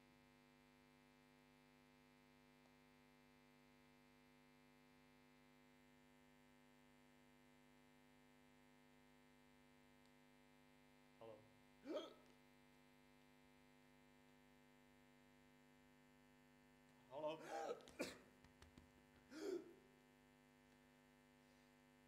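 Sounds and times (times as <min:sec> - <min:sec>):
person making short vocal sounds: 0:11.9 - 0:12.3, 0:19.3 - 0:19.8
electrical mains hum: 0:15.8 - 0:20.0.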